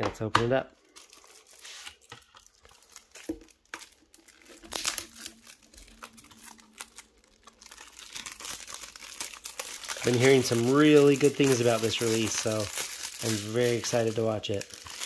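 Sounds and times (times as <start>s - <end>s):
plastic wrap crinkling and tearing: 0.7s - 15.0s.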